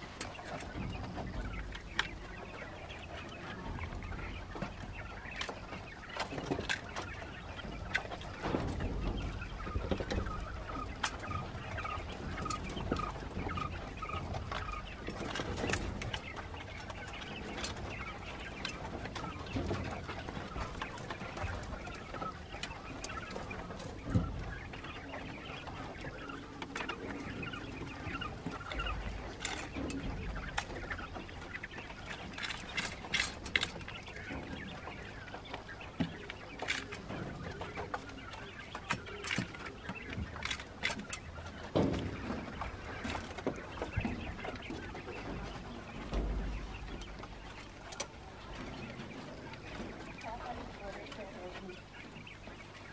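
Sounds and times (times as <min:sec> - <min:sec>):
young quails chirping and peeping: 0:00.0 - 0:52.9.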